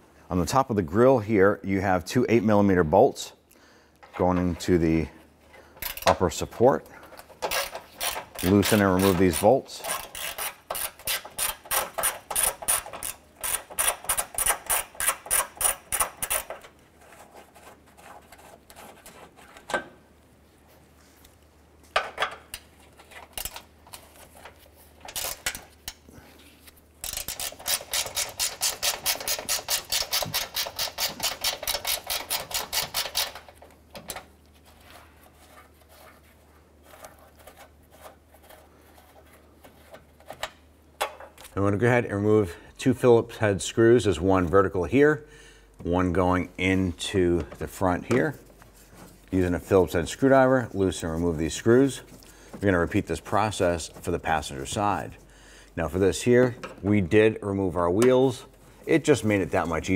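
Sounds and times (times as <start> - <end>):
hand ratchet clicking: 7.4 - 16.6, 27.0 - 33.5.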